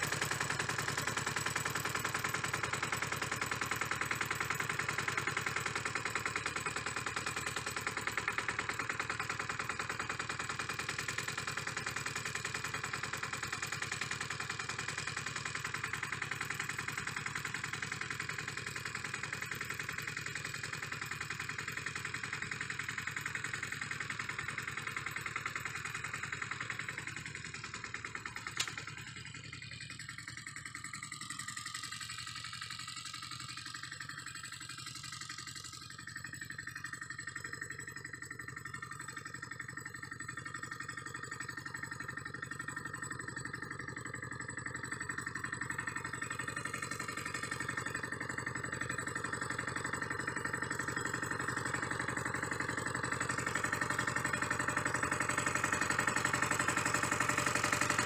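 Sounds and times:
small tractor engine running: 0.0 - 58.0.

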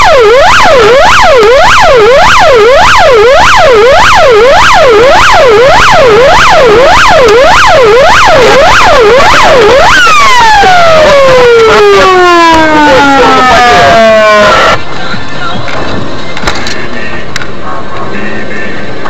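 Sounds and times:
police siren wailing: 0.0 - 14.8.

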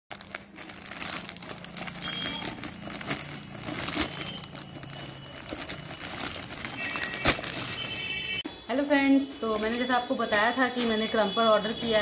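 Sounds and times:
plastic bag crinkling: 0.1 - 8.4.

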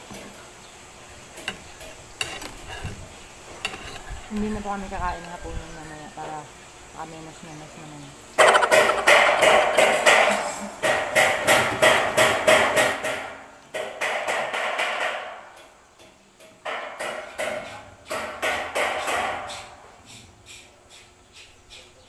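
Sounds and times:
rhythmic ringing hammering: 8.4 - 15.2.

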